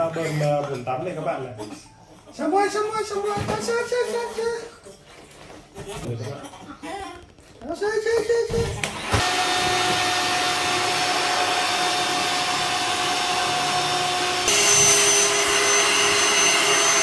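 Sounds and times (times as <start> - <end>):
electric air pump humming: 8.9 - 17.0.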